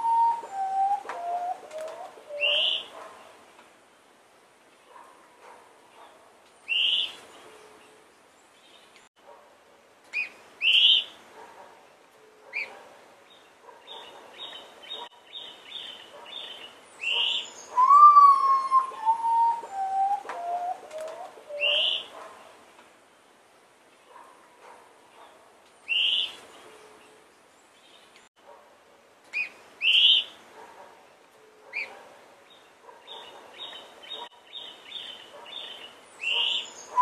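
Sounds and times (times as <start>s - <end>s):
mournful whistled bird notes: 0.0s - 1.6s, 17.2s - 20.8s, 36.6s - 37.0s
birds chirping: 0.0s - 3.4s, 10.1s - 22.6s, 31.4s - 37.0s.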